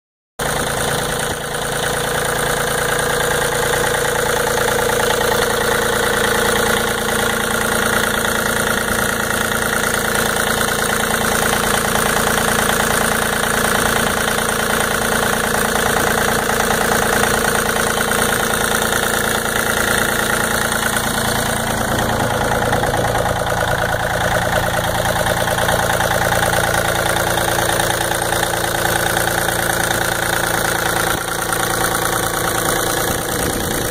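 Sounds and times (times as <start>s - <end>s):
diesel tractor engine idling: 0.4s - 33.9s.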